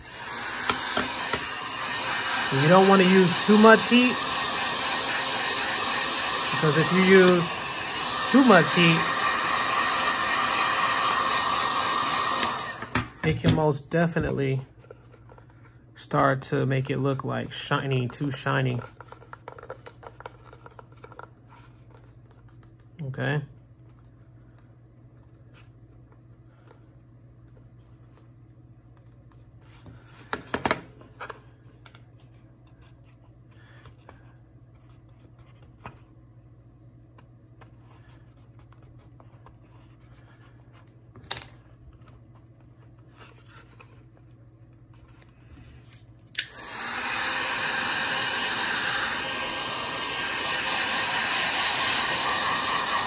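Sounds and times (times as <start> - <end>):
heat gun blowing hot air: 0.0 - 13.4, 46.4 - 53.0.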